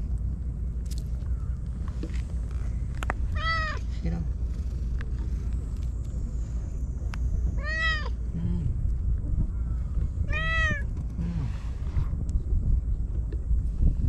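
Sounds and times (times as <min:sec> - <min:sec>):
low rumble: 0:00.0 - 0:14.0
cat meowing: 0:03.3 - 0:03.8, 0:07.6 - 0:08.2, 0:10.3 - 0:10.9.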